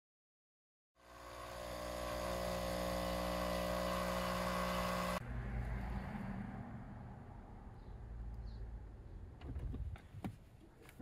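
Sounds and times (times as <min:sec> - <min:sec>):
espresso machine pump humming: 0:01.0 - 0:05.2.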